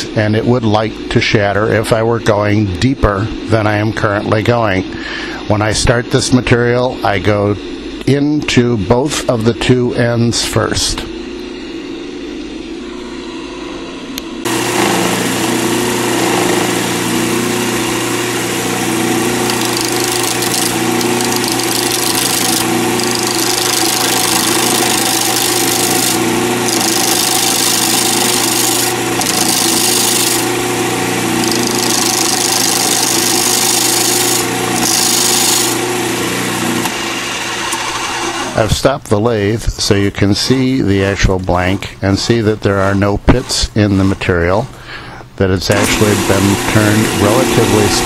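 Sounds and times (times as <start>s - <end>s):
lathe motor hum: 12.7s - 38.6s, 45.7s - 48.0s
chisel hissing cut: 14.5s - 35.9s
tool chipping against blank: 19.4s - 30.5s, 31.4s - 35.6s.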